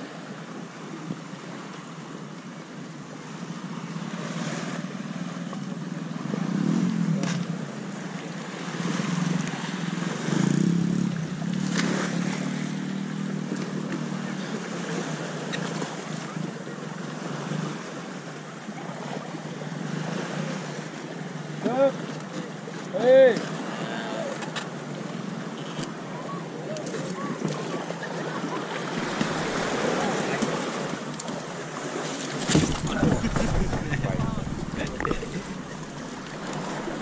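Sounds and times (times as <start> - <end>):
boat engine running: 0.0 - 37.0
sea and wind noise: 0.0 - 37.0
brief splashes: 28.8 - 37.0.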